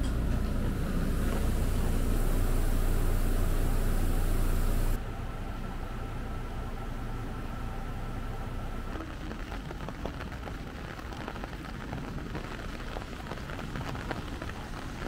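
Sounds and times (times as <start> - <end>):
steady rain falling: 8.8 - 15.0
raindrops clicking close by: 8.9 - 15.0.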